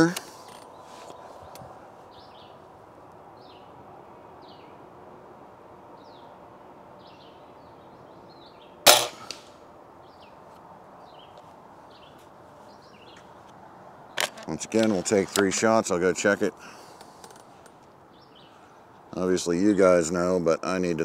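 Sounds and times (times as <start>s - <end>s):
air rifle shot: 8.8s - 9.6s.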